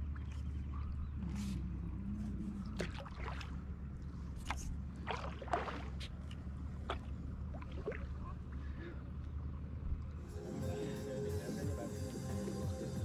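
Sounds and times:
steady low hum: 0.0 - 13.0
water splashes and drips: 2.6 - 3.8, 4.4 - 8.3
paddle dipping into water: 2.6 - 8.6.

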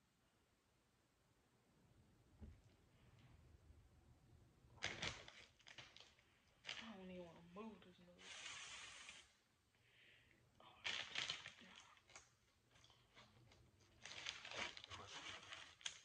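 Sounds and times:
plastic piping bag crinkling: 4.8 - 9.2, 10.7 - 16.0.

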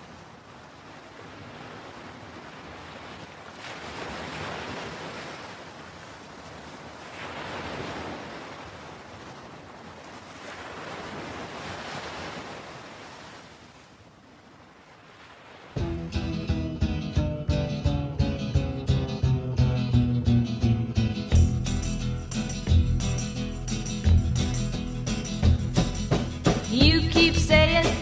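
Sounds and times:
ocean waves washing in: 0.0 - 17.2.

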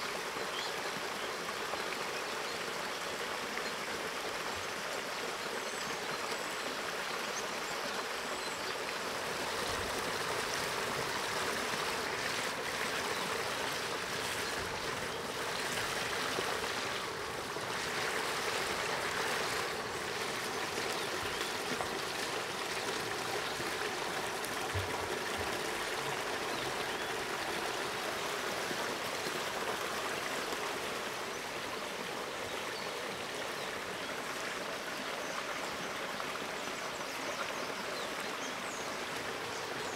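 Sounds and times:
stream flowing over cascades: 0.0 - 39.9.

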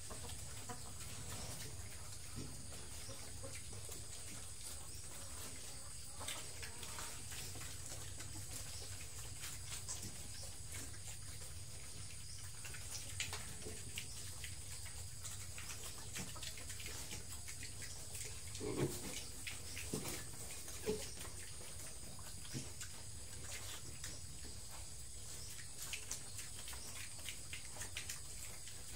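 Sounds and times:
pigs chewing and smacking: 0.0 - 28.9
pig grunt: 18.4 - 21.2.

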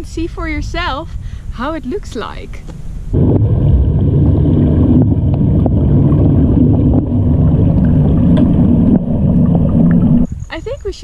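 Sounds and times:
muffled underwater rumble: 3.1 - 10.5.

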